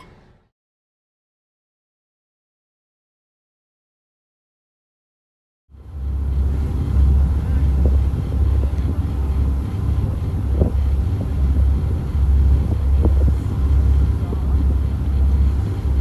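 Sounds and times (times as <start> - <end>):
ferry engines droning: 5.7 - 16.0.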